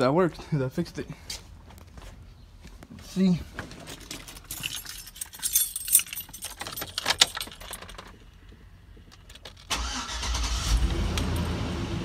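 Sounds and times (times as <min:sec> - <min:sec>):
keys jangling: 0:03.8 - 0:08.3
car engine cranking: 0:09.1 - 0:12.0.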